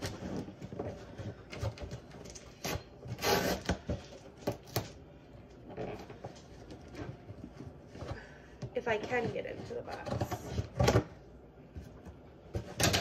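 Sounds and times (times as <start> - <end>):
cardboard tape rasping: 0.0 - 5.0.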